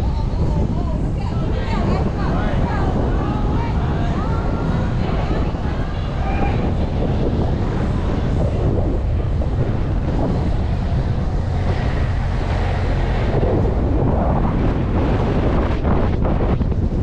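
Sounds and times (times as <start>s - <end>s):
car road noise: 0.0s - 17.0s
wind rumbling on microphone: 0.0s - 17.0s.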